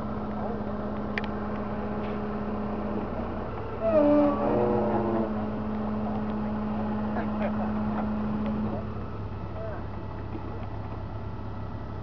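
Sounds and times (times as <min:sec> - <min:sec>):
engine idling: 0:00.0 - 0:12.0
call with wavering pitch: 0:03.8 - 0:05.3.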